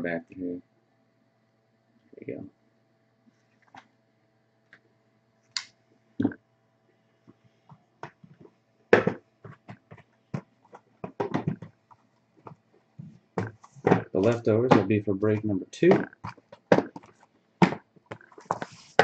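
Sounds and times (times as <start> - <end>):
cardboard boxes knocking on table: 9.0 - 11.8, 13.4 - 14.9, 15.9 - 19.0.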